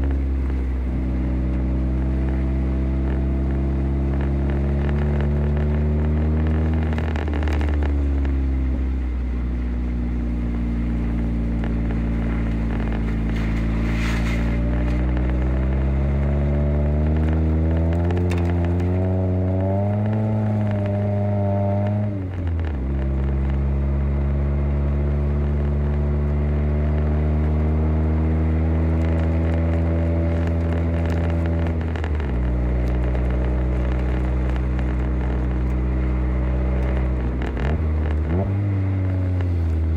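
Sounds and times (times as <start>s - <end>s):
car engine from inside cabin: 0.0s - 39.9s
tyre crackle on snow: 11.7s - 15.8s.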